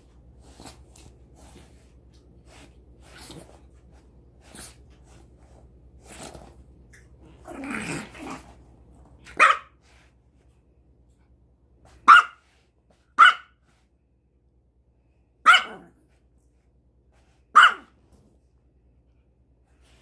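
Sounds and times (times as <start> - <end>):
dog growling: 7.4 - 8.6
dog barking: 9.3 - 9.8, 12.0 - 12.4, 13.2 - 13.6, 15.4 - 16.0, 17.5 - 17.9.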